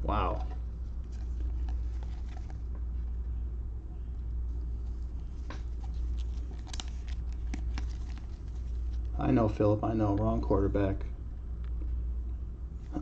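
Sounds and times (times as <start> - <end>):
steady low hum: 0.0 - 13.0
cards and plastic sleeves ticking: 5.5 - 9.1.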